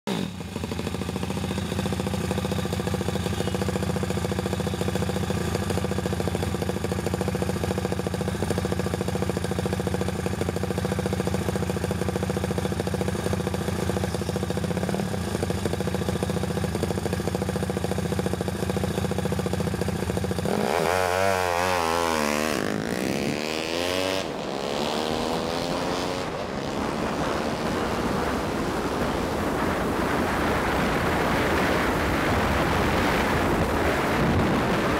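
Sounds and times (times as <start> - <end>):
motorcycle engine running: 0.1 - 34.9
wind and road noise: 0.1 - 34.9.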